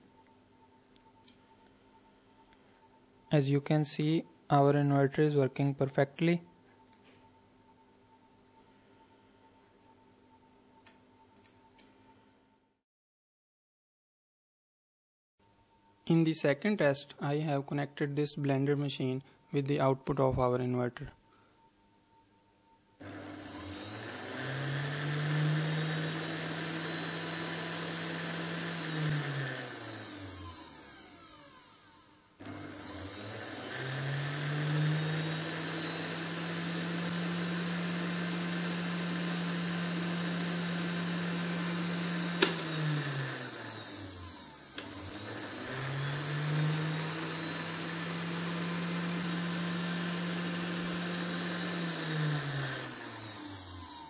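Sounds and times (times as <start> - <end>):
blender motor running: 23.0 - 54.0.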